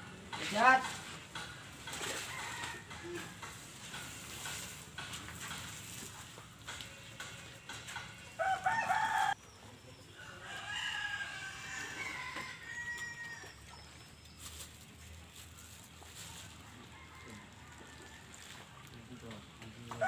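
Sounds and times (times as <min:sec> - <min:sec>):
rooster crowing: 0:02.2 - 0:03.3, 0:08.4 - 0:09.4, 0:10.2 - 0:13.6, 0:16.9 - 0:18.4.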